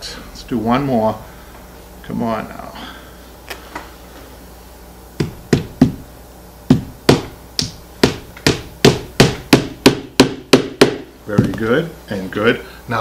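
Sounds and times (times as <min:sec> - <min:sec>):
hammer tapping: 0:05.2 - 0:06.0, 0:06.7 - 0:11.6.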